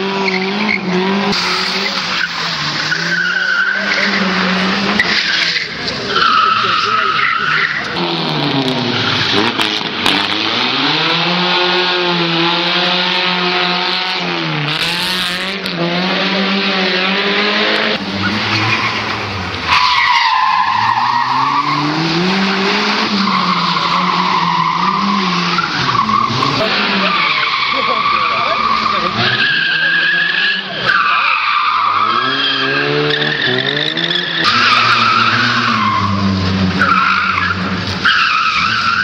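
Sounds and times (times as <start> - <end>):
rally car engine revving: 0.0 - 39.0
tyres skidding: 0.0 - 39.0.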